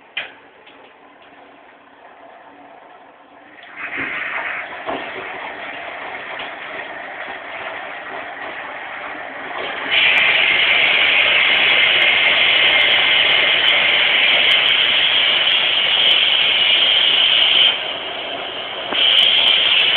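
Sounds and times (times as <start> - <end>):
washing machine filling with water: 0.3 - 19.9
hiss of incoming water: 3.6 - 19.9.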